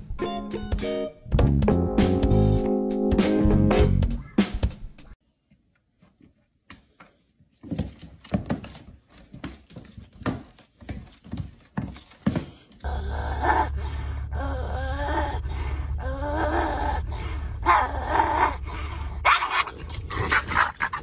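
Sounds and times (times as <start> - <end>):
cats thumping and scuffling on floor: 6.7 - 12.7.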